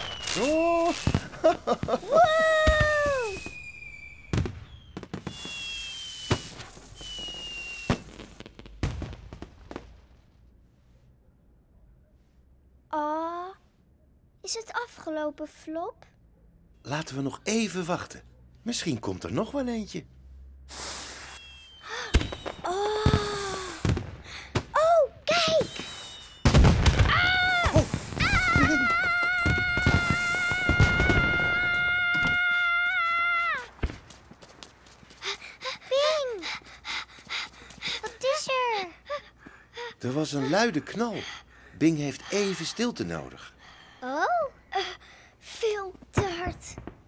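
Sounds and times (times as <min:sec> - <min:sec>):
whistling rockets: 0:00.0 - 0:09.9, 0:20.7 - 0:24.7, 0:25.4 - 0:32.4
crackling firework pops: 0:00.0 - 0:10.2, 0:22.0 - 0:24.8, 0:25.4 - 0:32.4, 0:33.6 - 0:34.4, 0:46.2 - 0:47.0
firework bang: 0:00.0 - 0:10.2, 0:22.0 - 0:24.8, 0:25.5 - 0:32.4.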